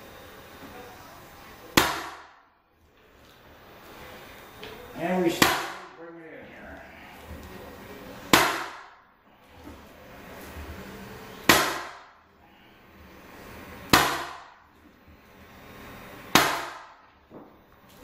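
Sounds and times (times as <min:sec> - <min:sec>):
nail gun firing: 0:16.3 - 0:17.0.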